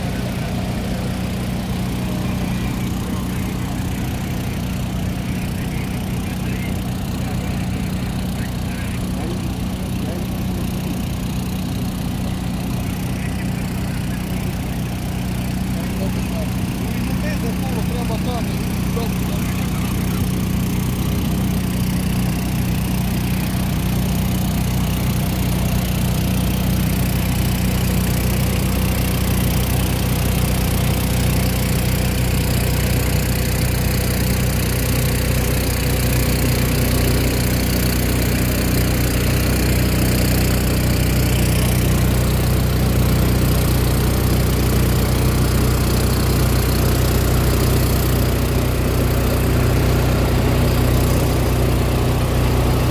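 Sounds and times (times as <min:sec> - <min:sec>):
diesel engines running: 0:00.0 - 0:52.9.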